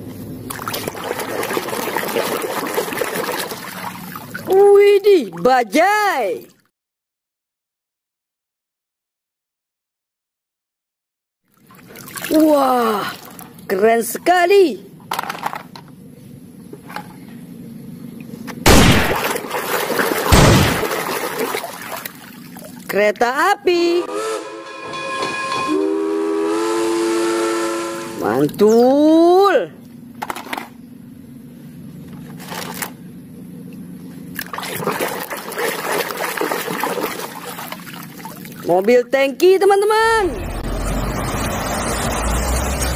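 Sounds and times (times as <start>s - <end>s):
water splashing and churning: 0.4s - 5.6s, 11.5s - 13.7s, 18.7s - 22.9s, 34.3s - 38.9s.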